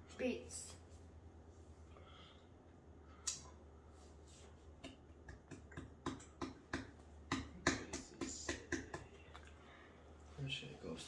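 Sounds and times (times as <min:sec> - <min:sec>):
sharp clicks or snaps: 0:03.2 - 0:03.5.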